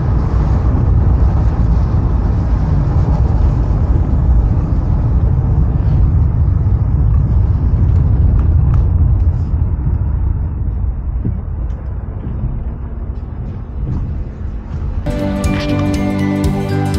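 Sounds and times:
car driving along road: 0:00.0 - 0:16.9
music: 0:14.7 - 0:16.9.

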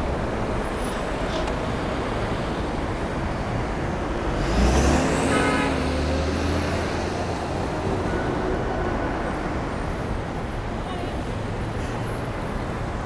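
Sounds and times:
steady road noise: 0:00.0 - 0:13.0
heavy vehicle engine pulling away: 0:04.3 - 0:07.9.

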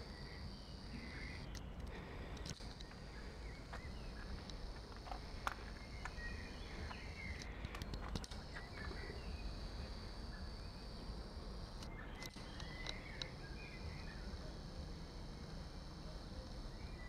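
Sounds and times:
small birds chirping: 0:00.0 - 0:17.0
footsteps on pebble-concrete patio: 0:03.7 - 0:07.1.

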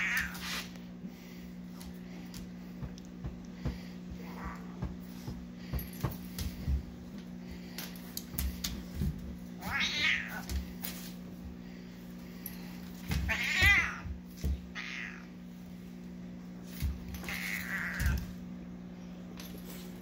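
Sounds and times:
paws scuffling on wooden floor: 0:01.8 - 0:18.4
cat yowling: 0:09.6 - 0:10.4, 0:14.8 - 0:15.3.

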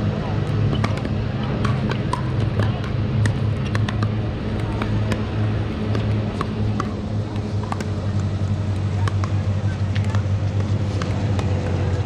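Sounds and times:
low hum: 0:00.0 - 0:12.0
paddles hitting plastic balls: 0:00.7 - 0:05.3.

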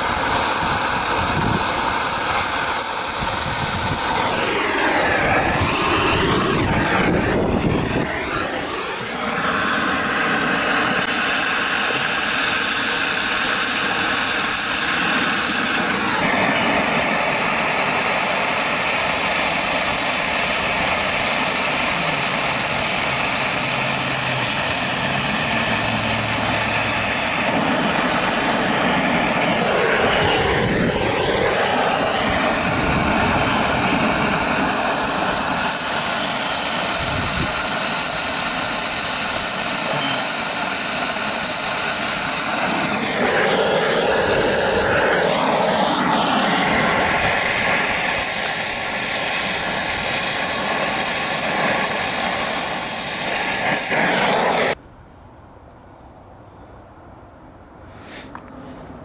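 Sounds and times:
torch flame hissing: 0:00.0 - 0:54.8.

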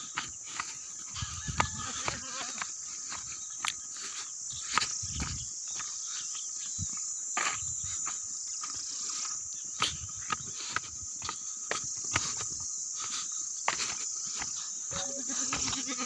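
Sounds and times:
high insect buzz: 0:00.0 - 0:16.0
hooves clicking on gravel: 0:00.0 - 0:16.0
goat bleating: 0:01.8 - 0:02.6, 0:14.9 - 0:16.0.

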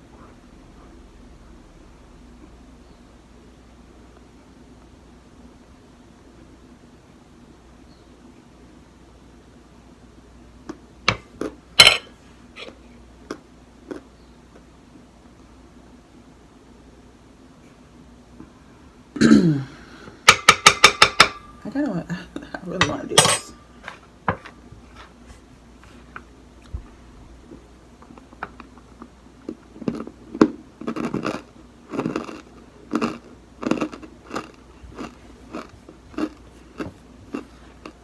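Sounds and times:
chewing: 0:28.0 - 0:38.0.

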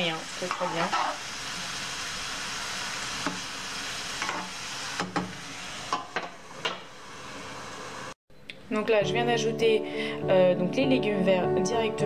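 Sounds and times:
vegetables sizzling in oil: 0:00.0 - 0:08.2.

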